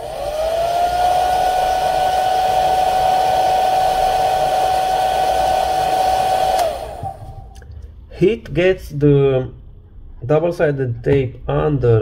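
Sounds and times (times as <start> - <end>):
hot-air gun fan whine: 0.0 - 7.5.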